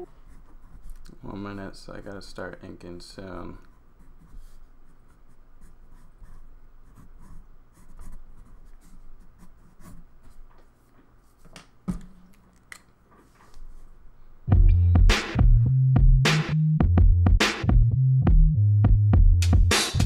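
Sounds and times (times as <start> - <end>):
pencil scratching on paper: 0.2 - 1.0, 3.6 - 10.5.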